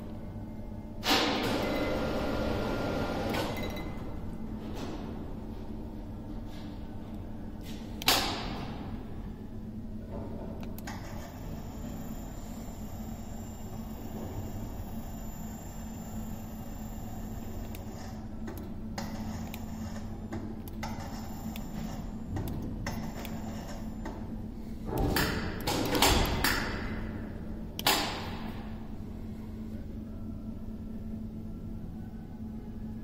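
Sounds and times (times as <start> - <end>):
workshop hum: 0.0 - 33.0.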